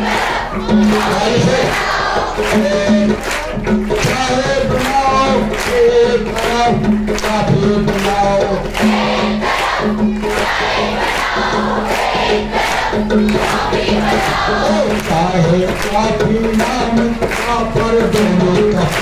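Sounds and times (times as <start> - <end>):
group of voices singing: 0.0 - 19.0
steady drumbeat: 0.0 - 19.0.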